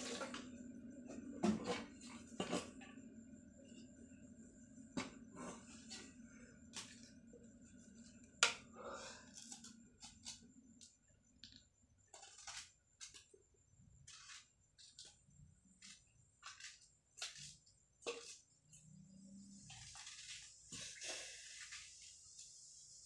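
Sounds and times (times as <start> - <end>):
knife scraping potato: 12.1 - 13.3, 14.0 - 15.2, 15.8 - 18.4, 19.6 - 21.9.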